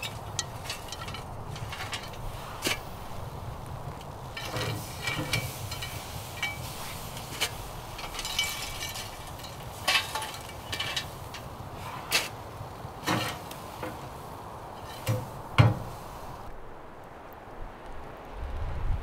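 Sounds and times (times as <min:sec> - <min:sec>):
cookware and utensils clinking: 0:04.3 - 0:11.5.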